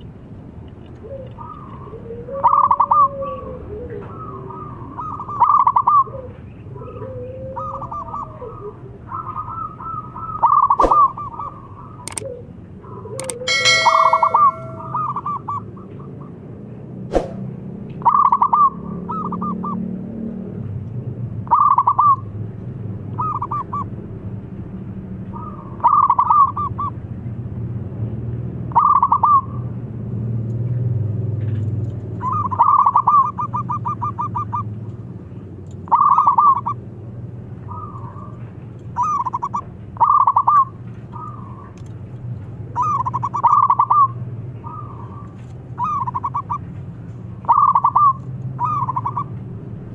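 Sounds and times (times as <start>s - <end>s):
dove cooing: 1.0s - 15.3s, 32.2s - 34.7s, 35.9s - 36.8s, 39.0s - 41.7s, 42.8s - 46.6s, 47.4s - 49.3s
sharp click: 12.1s - 12.3s, 13.2s - 14.6s.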